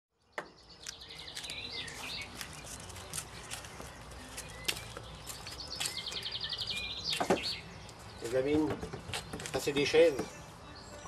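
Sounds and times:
songbirds chirping: 0.1 - 11.0.

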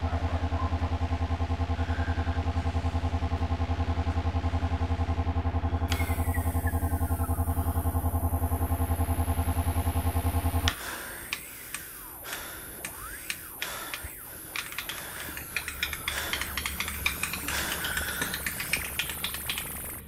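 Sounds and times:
low pulsing hum: 0.0 - 20.0
sharp clicks and ticks: 10.6 - 20.0.

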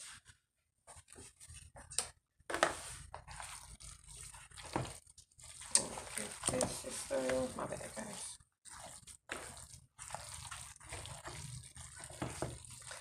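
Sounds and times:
hand squishing wet food: 2.8 - 13.0.

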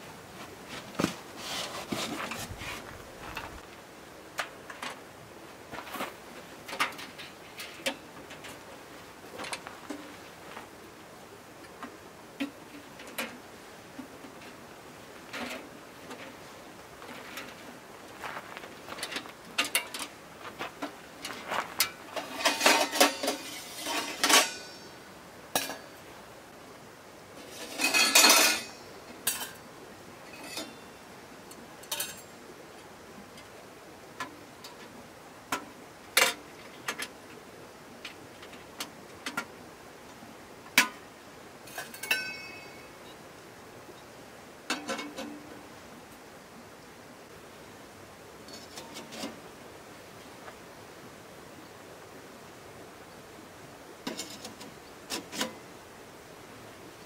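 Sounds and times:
ringing metal clink: 22.4 - 25.0, 27.8 - 29.6, 41.8 - 42.9
metal clicks and clinks: 31.8 - 32.3, 41.7 - 42.8.

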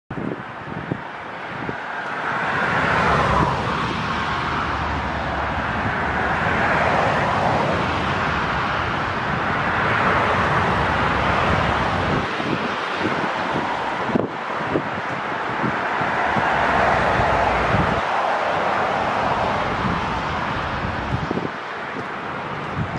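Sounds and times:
jet engines roaring: 0.2 - 22.9.

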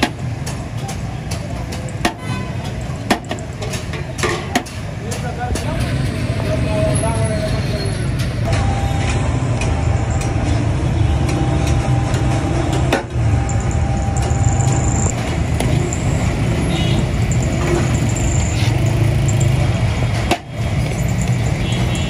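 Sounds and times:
street noise: 0.0 - 22.0.

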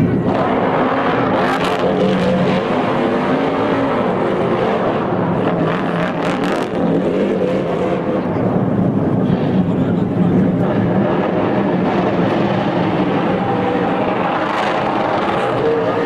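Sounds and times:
race car engine revving: 0.0 - 16.0.

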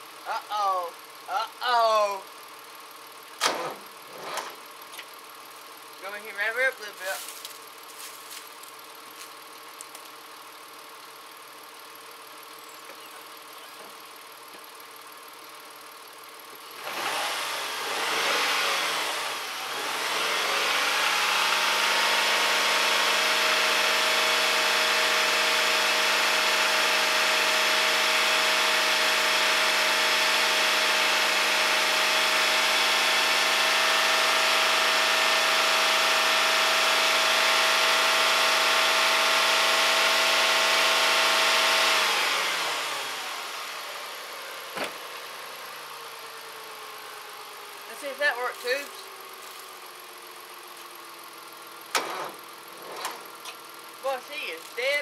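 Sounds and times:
tractor engine cranking and idling: 1.9 - 17.1, 42.1 - 55.0.

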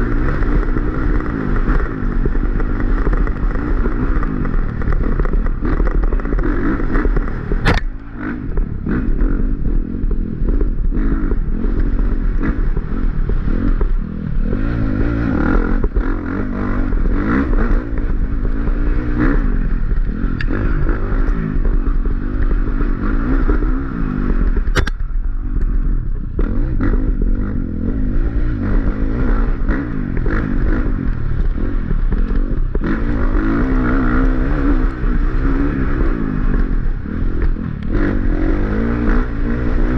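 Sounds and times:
chassis clatter over rough ground: 0.0 - 39.9
dirt bike engine revving: 0.0 - 39.9.

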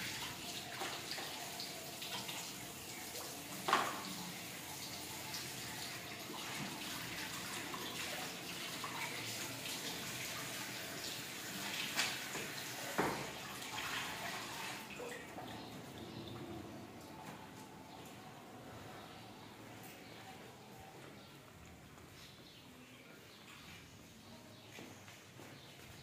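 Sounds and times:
tap water running into basin: 0.0 - 16.4.

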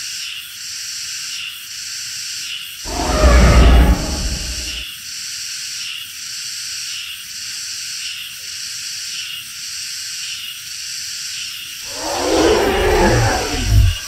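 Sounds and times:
deep dinosaur roar: 2.9 - 4.8, 11.9 - 14.0.

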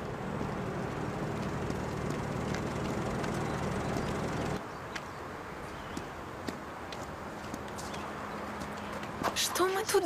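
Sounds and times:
engine hum: 0.0 - 9.4
footsteps on gravel: 0.3 - 5.1, 5.7 - 9.4.

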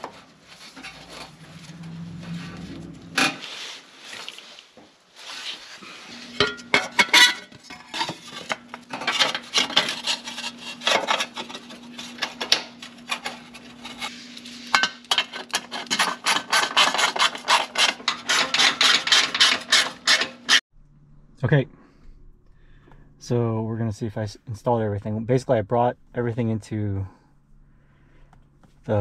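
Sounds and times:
gloved hand rubbing and scraping: 0.0 - 6.4.

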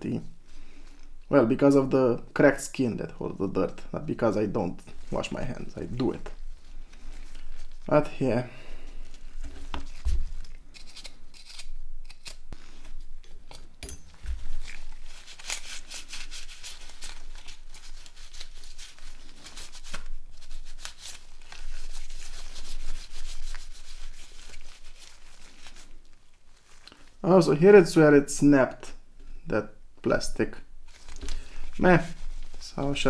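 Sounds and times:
rubbing and scraping on phone: 14.3 - 26.8.

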